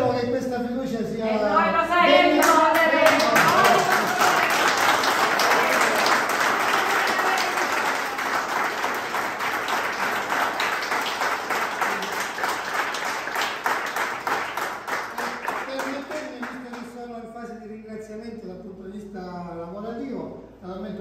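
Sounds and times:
crowd applauding: 2.4 - 17.0.

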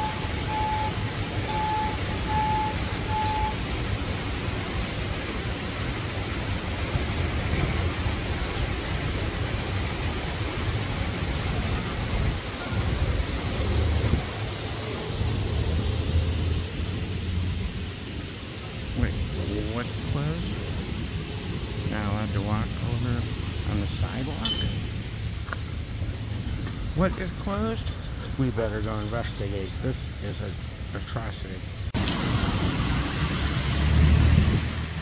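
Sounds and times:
reversing alarm beeps: 0.0 - 3.6
low rumble of machinery and traffic: 0.0 - 35.0.

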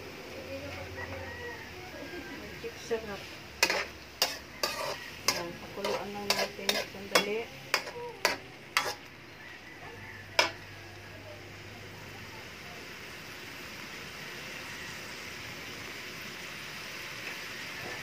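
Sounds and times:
vegetables sizzling in a wok: 0.0 - 18.0
metal spatula clacking on wok: 3.6 - 9.1, 10.4 - 10.6.

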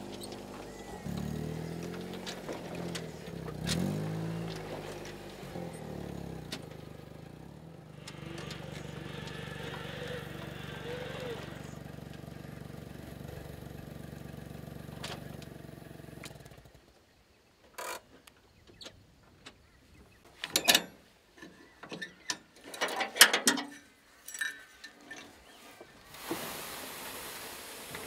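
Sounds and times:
motor running: 0.0 - 16.7.

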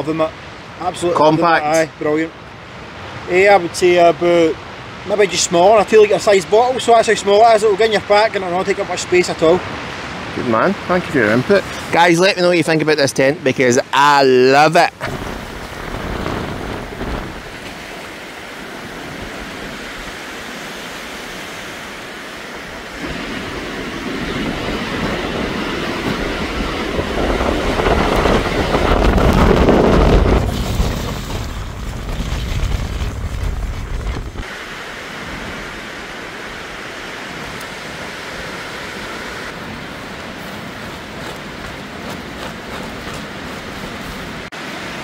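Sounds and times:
wind gusting on microphone: 0.0 - 45.0
waves washing on rocky shore: 14.0 - 45.0.

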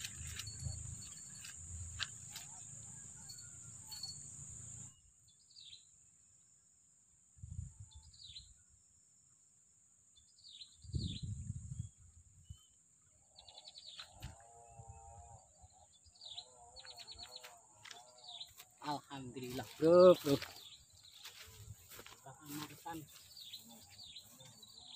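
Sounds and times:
high-pitched insect buzz: 0.0 - 5.0.

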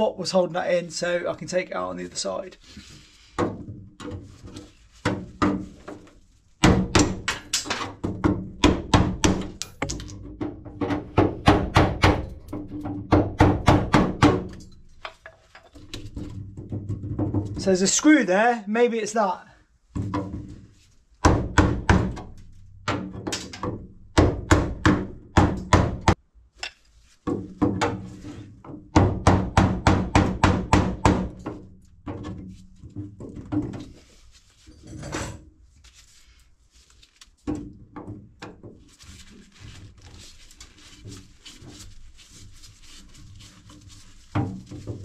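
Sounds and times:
hammer knocking on wood: 8.0 - 9.6, 10.3 - 14.5, 21.2 - 22.3, 22.9 - 26.2, 28.7 - 31.5.

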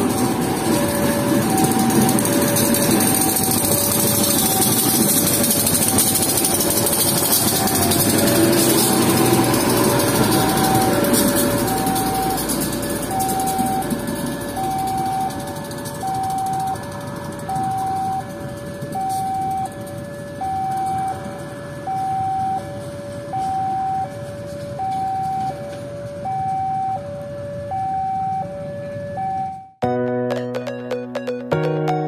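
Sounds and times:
passing train rumble: 0.0 - 21.9
level crossing two-tone alarm: 0.0 - 32.0.

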